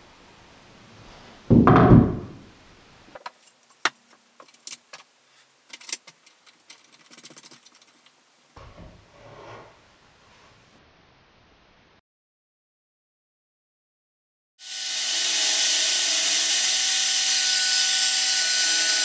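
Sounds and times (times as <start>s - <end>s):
small metal parts clicking on wood: 4.4s - 5.0s, 5.7s - 8.2s
rubbing sliding sound: 9.1s - 10.7s.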